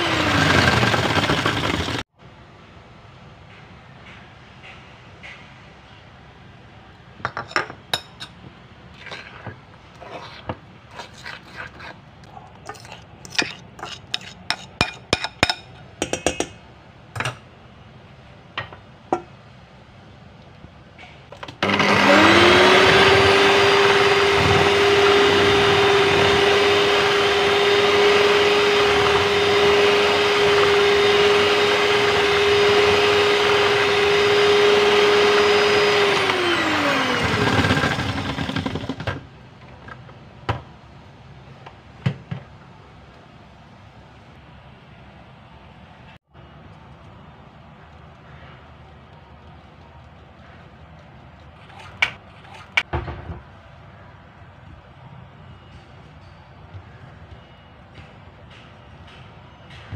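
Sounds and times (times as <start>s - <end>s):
electric hand mixer running: 0.0s - 2.0s, 21.5s - 39.1s
fork scraping in ceramic bowl: 9.0s - 16.4s.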